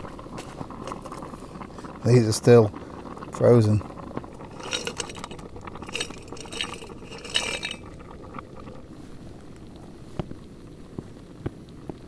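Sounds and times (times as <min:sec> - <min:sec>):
gas stove hissing: 0:00.0 - 0:10.6
prawns clinking and splashing: 0:03.3 - 0:08.8.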